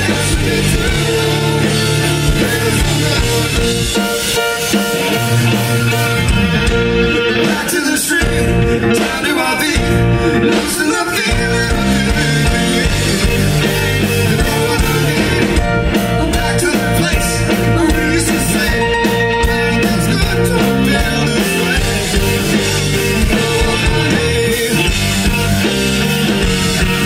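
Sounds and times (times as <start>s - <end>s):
rock band playing: 0.0s - 27.0s.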